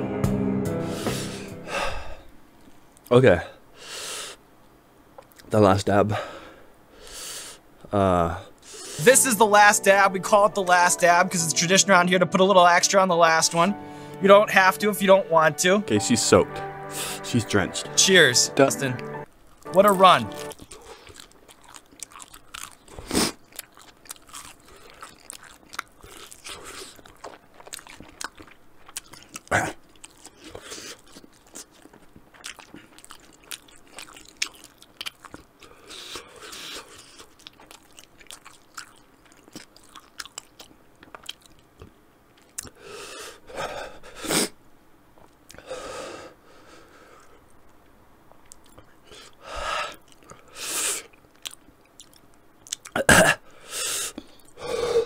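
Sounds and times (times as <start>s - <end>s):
breathy bursts: 0.7s - 2.3s, 6.1s - 9.1s, 13.8s - 14.2s, 49.1s - 51.1s, 53.4s - 55.0s
person chewing chicken wing: 19.5s - 43.1s, 48.4s - 53.0s
wet mouth clicks and smacks: 51.1s - 53.0s.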